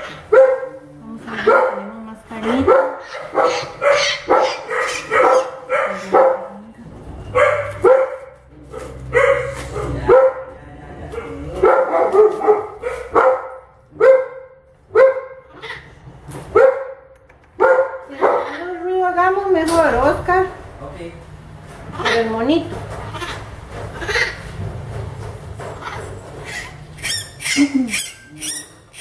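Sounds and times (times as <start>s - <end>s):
baby monkey yelping: 3.0s - 6.2s, 15.5s - 16.0s, 22.0s - 22.4s, 23.1s - 24.5s, 25.8s - 29.0s.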